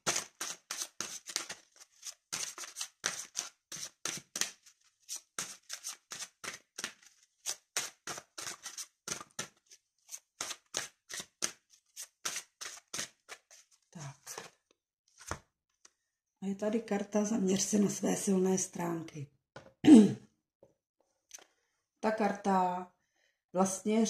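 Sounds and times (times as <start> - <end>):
cards being shuffled: 0.0 - 14.6, 15.2 - 15.4.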